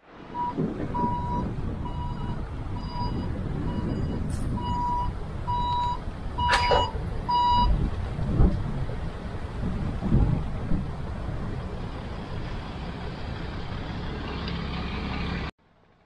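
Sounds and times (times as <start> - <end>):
low engine rumble: 0.0 - 16.0
reversing alarm beeping: 0.4 - 7.8.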